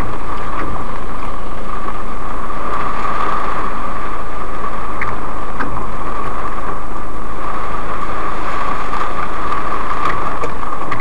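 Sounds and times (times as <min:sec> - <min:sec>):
heavy rain drumming on car roof: 0:00.0 - 0:11.0.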